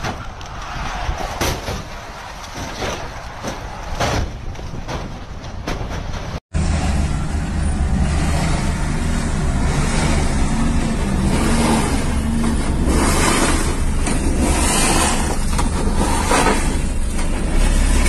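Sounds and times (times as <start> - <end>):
engine and tyre rumble: 0.0 - 18.0.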